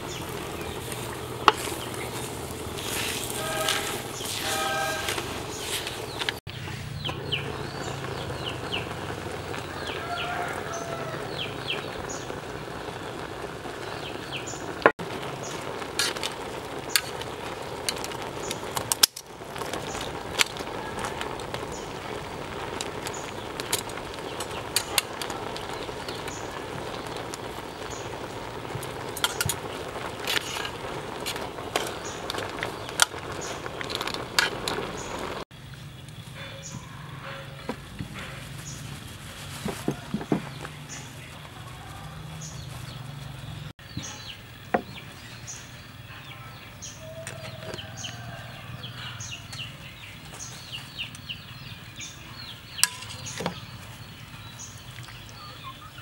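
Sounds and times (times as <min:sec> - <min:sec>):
wood fire crackling: 0:00.0 - 0:56.0
bird chirps: 0:42.4 - 0:56.0.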